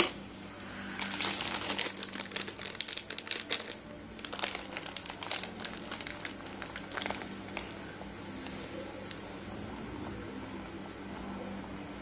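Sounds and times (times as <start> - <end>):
grated cheese crinkling: 0.7 - 9.4.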